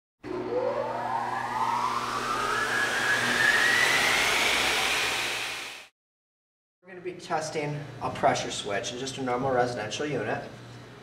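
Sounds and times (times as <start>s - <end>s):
low hum: 0.2s - 5.9s
rising whoosh: 0.3s - 5.9s.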